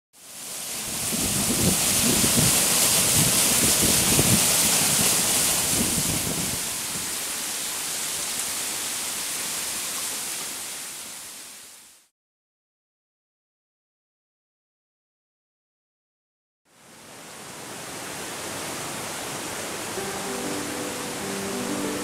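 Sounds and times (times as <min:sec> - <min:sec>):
waterfall pouring onto rocks: 0:00.2 - 0:11.7.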